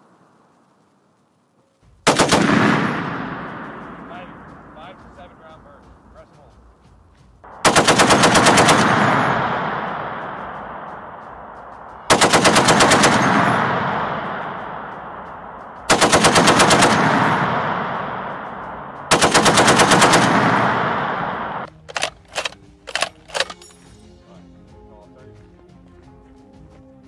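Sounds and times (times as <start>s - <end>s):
rolling echo: 1.7s - 22.6s
machine gun firing bursts: 2.0s - 4.8s, 7.5s - 23.6s.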